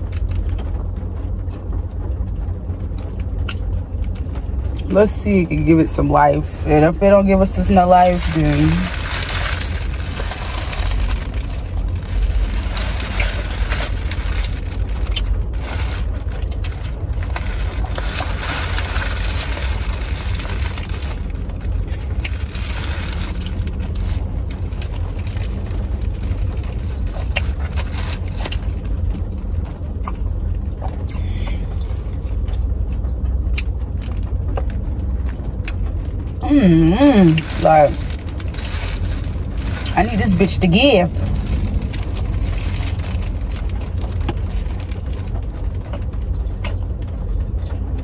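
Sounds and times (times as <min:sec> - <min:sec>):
low rumble inside a car: 0:00.0 - 0:48.0
paper wrapper crinkling: 0:07.4 - 0:29.0, 0:37.0 - 0:45.6.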